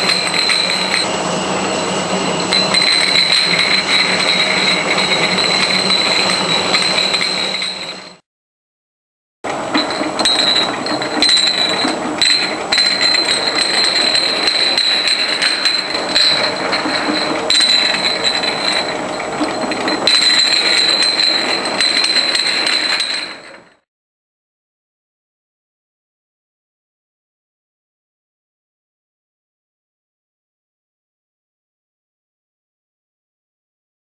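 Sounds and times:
glass bottles clinking: 0.0 - 8.2, 9.6 - 23.8
high machine whine: 0.0 - 8.2, 9.5 - 23.6.

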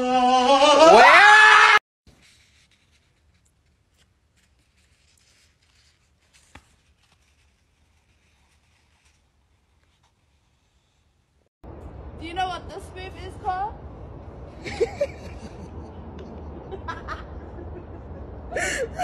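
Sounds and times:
loud rising cry: 0.0 - 1.8
paper pages turning: 2.1 - 11.1.

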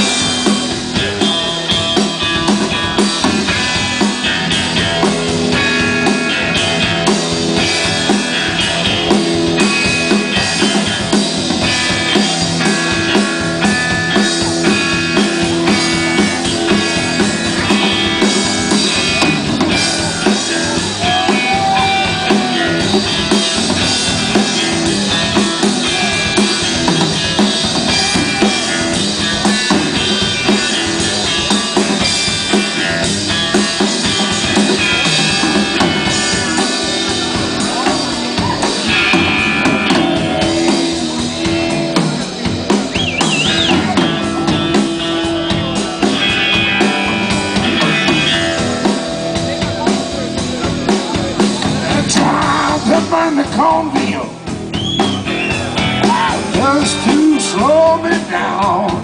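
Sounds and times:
bass guitar: 0.0 - 59.0
drum kit steady beat: 0.0 - 59.0
electric guitar: 0.0 - 59.0.

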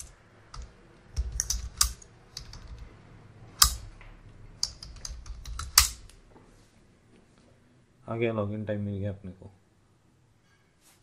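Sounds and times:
computer keyboard typing: 0.0 - 2.9, 4.6 - 6.1
loud key strikes: 0.0 - 2.9, 3.6 - 4.0, 4.6 - 6.1.

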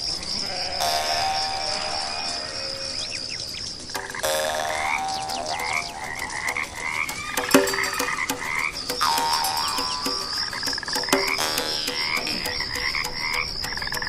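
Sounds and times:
frogs croaking: 0.0 - 14.0
high pulsing trill: 4.0 - 14.0.

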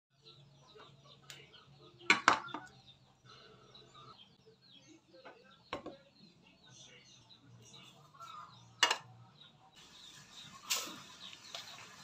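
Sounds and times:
faint bird chirps: 0.1 - 12.0.

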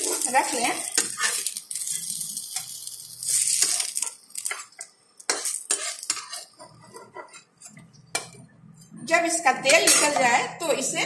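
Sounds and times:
hot oil sizzling: 0.0 - 8.3
utensil scraping frying pan: 0.0 - 8.4.

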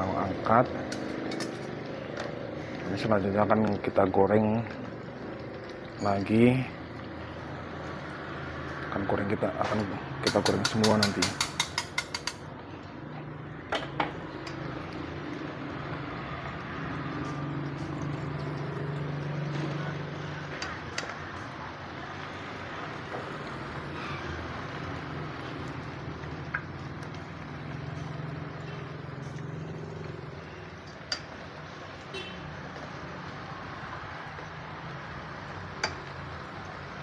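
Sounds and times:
food sizzling in hot oil: 0.0 - 37.0
metal utensils clicking on pan: 0.8 - 2.4, 9.6 - 12.5, 30.8 - 31.4, 35.7 - 36.3.

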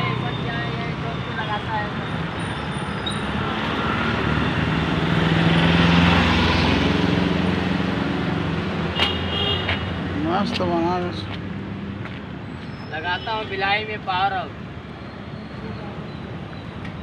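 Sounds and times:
road traffic: 0.0 - 17.0
vehicle engine passing: 3.2 - 8.9.

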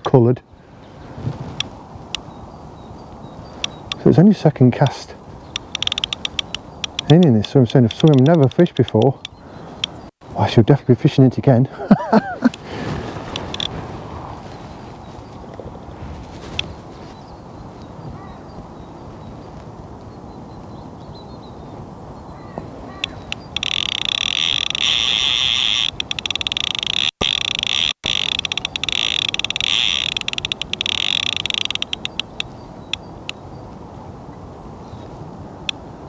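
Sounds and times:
fishing reel clutch ratcheting: 5.6 - 9.1, 23.0 - 32.4.

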